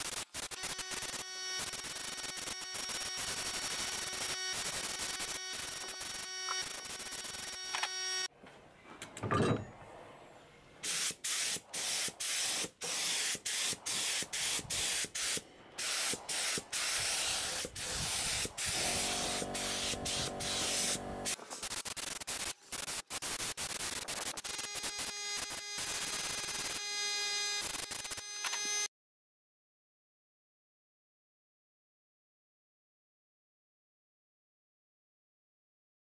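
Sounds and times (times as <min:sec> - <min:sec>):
paint spray gun hissing: 0:00.0 - 0:07.9, 0:10.8 - 0:24.7.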